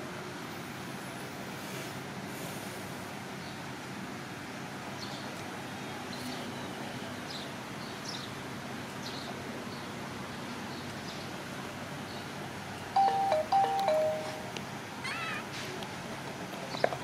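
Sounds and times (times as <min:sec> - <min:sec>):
steady background hiss: 0:00.0 - 0:16.8
small birds chirping: 0:04.9 - 0:11.4.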